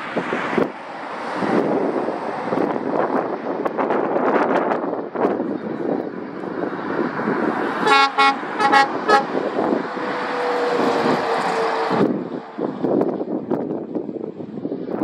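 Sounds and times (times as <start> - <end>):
passing road traffic: 0.0 - 15.0
passing vehicle hum: 0.0 - 15.0
wind: 0.0 - 15.0
vehicle horn short toots: 7.8 - 9.3.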